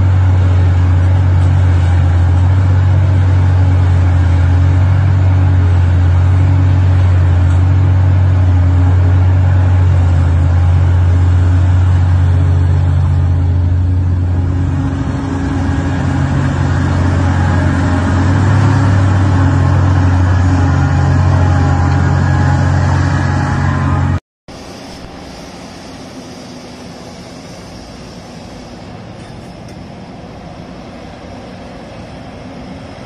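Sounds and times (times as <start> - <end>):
excavator engine droning: 0.0 - 33.0.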